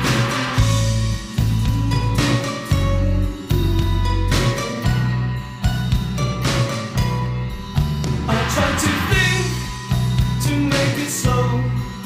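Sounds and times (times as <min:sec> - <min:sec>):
background music with bass guitar drums: 0:00.0 - 0:12.0.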